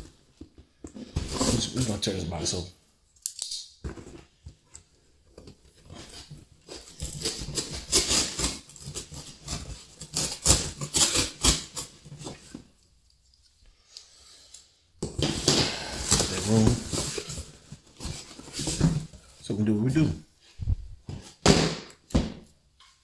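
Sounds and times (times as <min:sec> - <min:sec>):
cardboard crackling and rustling: 0:05.3 - 0:12.8, 0:15.3 - 0:20.0
cardboard box being torn open: 0:06.0 - 0:12.3, 0:15.9 - 0:17.4.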